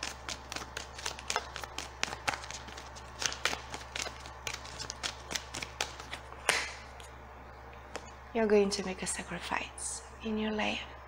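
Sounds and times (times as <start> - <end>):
cards being shuffled: 0.0 - 7.2.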